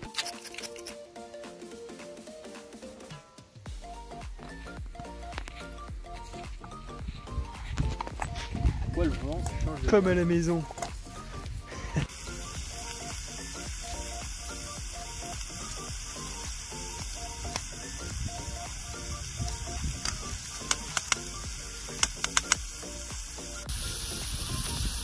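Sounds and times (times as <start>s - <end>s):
background music: 0.0s - 25.0s
meat sizzling in a frying pan: 12.1s - 25.0s
sharp clicks: 19.4s - 23.3s.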